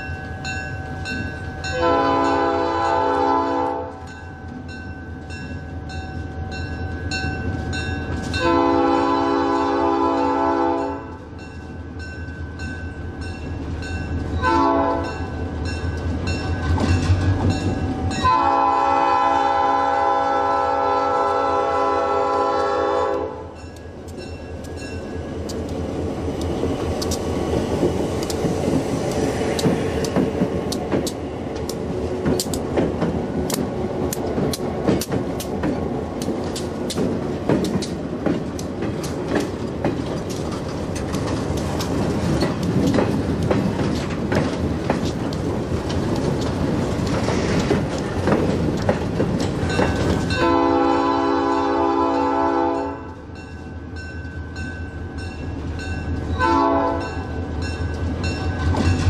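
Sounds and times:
locomotive air horn: 1.7 - 4.0, 8.4 - 11.1, 14.4 - 15.2, 18.2 - 23.6, 50.4 - 53.1, 56.4 - 57.1
train wheels clanking over rail joints: 15.1 - 18.3, 23.6 - 50.9, 57.7 - 59.0.

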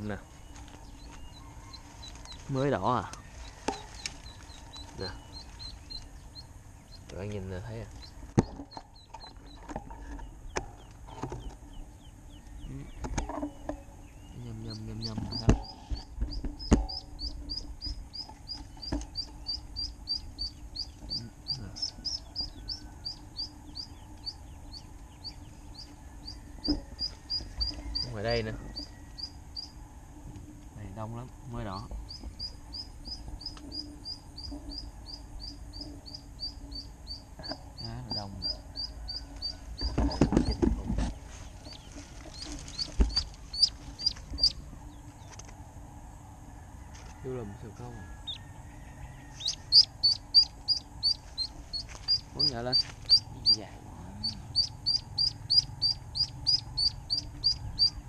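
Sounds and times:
ducklings peeping: 0.0 - 29.8, 30.8 - 45.5, 47.7 - 58.0
footsteps rustling through brush: 0.2 - 6.3, 40.7 - 45.5, 51.1 - 53.8.

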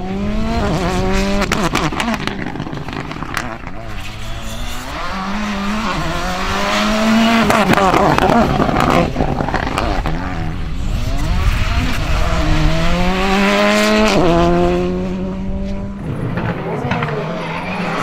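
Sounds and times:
rally car engine accelerating hard: 0.0 - 18.0.

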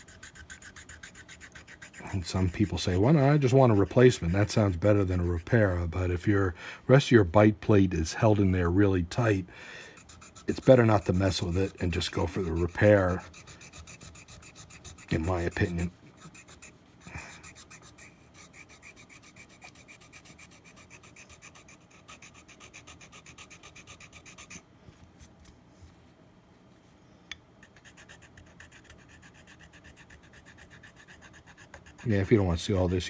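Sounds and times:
hand file rasping: 0.0 - 5.8, 9.9 - 24.6, 27.6 - 33.0.

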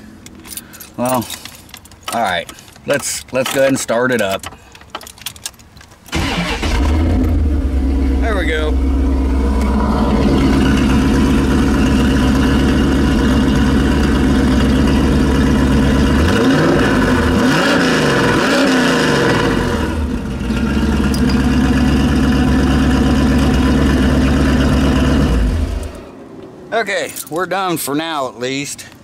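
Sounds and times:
car engine idling and revving: 6.1 - 26.7.

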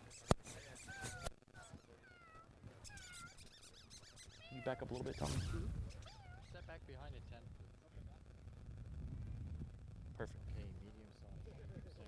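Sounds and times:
sharp click: 0.2 - 1.4
dog whining: 0.6 - 6.7.

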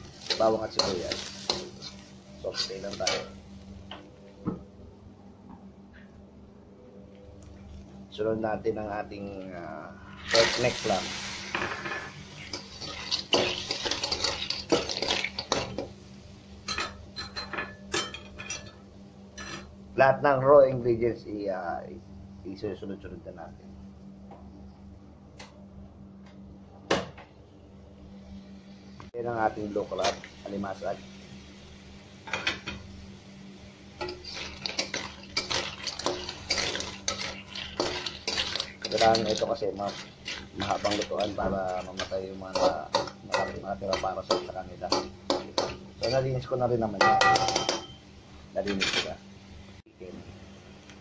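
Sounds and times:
spatula scraping clams in pan: 0.0 - 3.3, 10.2 - 15.8, 34.0 - 46.2.

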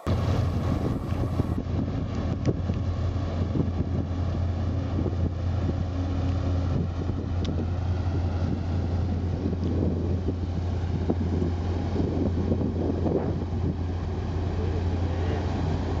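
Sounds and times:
ferry engine rumble: 0.0 - 16.0
wind buffeting microphone: 0.0 - 16.0.

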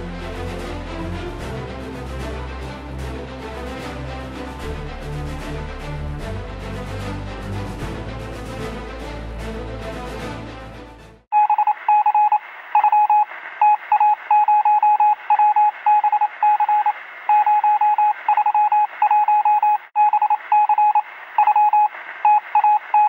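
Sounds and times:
morse code beeping: 11.3 - 23.0.

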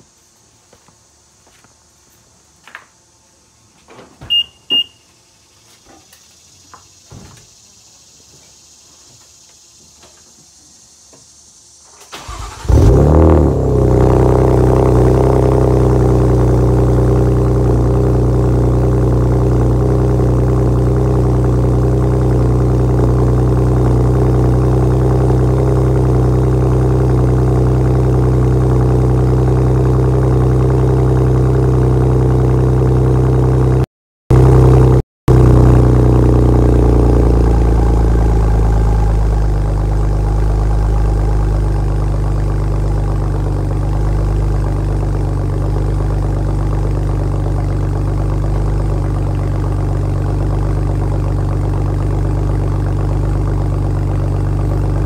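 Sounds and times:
thuds and clicks: 6.8 - 7.5
car engine cold start: 11.9 - 31.1
car engine idling: 12.2 - 55.0.

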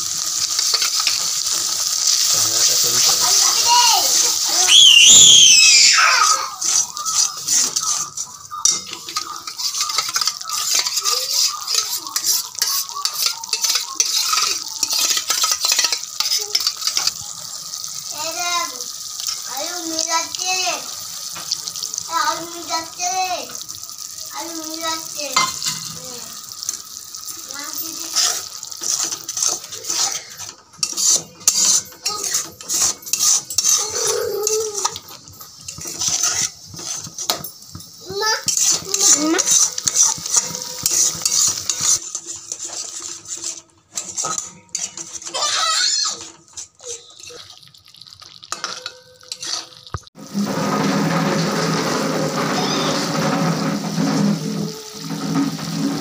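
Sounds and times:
oil sizzling: 0.0 - 56.0
spatula scraping metal pan: 0.2 - 4.8, 5.6 - 47.6, 48.2 - 56.0.

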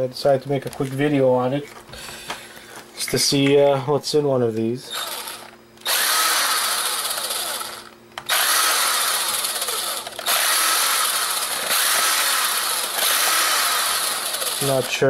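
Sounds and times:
impact driver running: 4.9 - 15.0.

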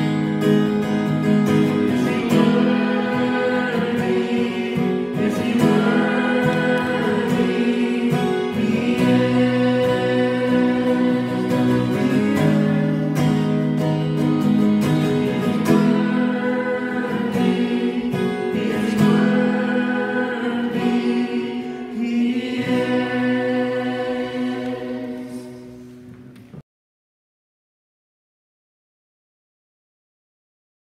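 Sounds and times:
strummed acoustic guitar: 0.0 - 26.6
congregation singing: 1.2 - 26.2
man and woman singing: 1.8 - 13.7, 15.5 - 25.7.

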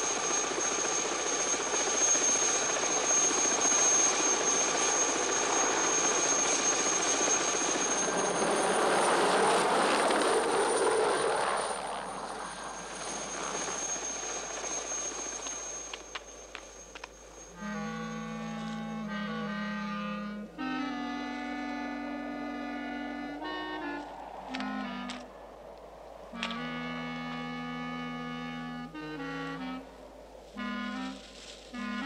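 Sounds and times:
helicopter rotor and engine: 0.0 - 25.3.

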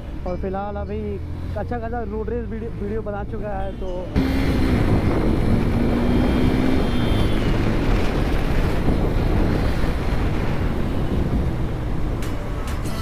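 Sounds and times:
motorcycle engine cruising: 4.2 - 12.2
wind rush on microphone: 4.4 - 12.8.

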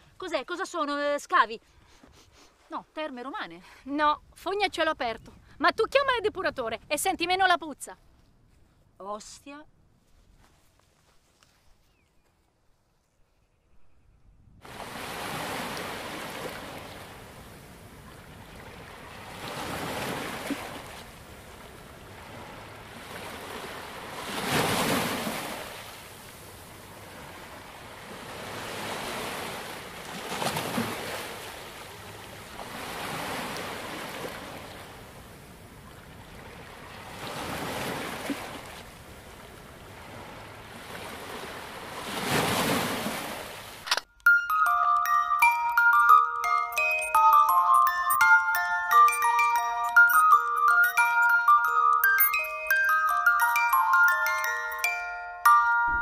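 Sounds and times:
sea waves washing onto shore: 14.6 - 43.8.

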